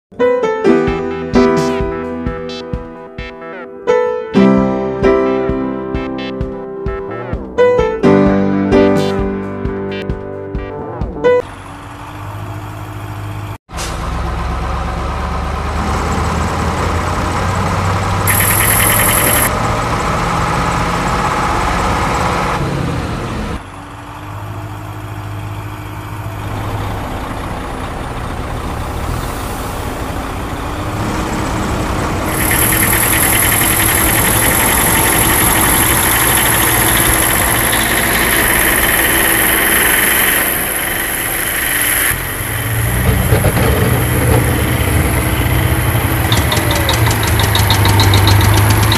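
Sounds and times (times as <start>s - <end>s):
heavy truck engine running: 11.3s - 48.9s.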